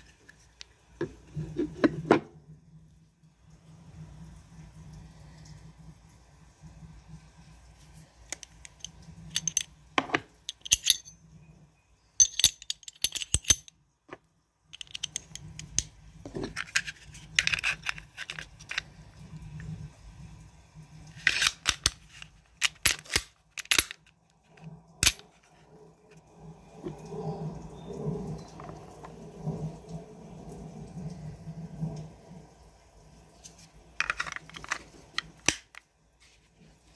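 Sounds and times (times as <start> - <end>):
pistol parts clicking and scraping: 8.3 - 11.1, 12.2 - 13.8, 14.8 - 18.9, 21.2 - 24.2, 25.0 - 25.5, 34.0 - 35.8.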